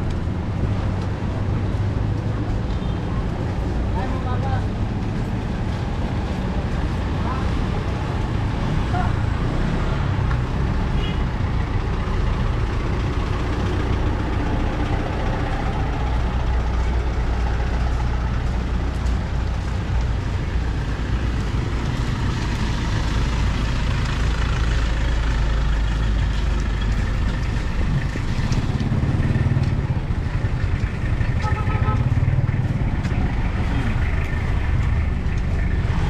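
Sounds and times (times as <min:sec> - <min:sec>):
street traffic noise: 0:00.0 - 0:36.0
vehicle engine rumbling: 0:00.0 - 0:36.0.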